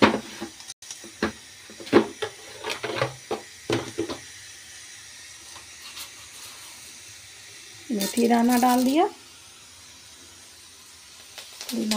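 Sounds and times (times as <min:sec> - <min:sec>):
kitchen utensils knocking and clinking: 0:00.0 - 0:00.6, 0:01.2 - 0:04.2
faint steady hiss: 0:00.1 - 0:11.9.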